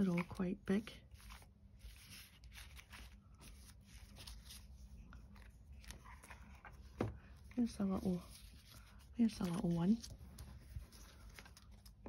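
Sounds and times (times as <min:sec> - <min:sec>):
paper stickers rustling: 0:00.0 - 0:06.9, 0:07.6 - 0:12.0.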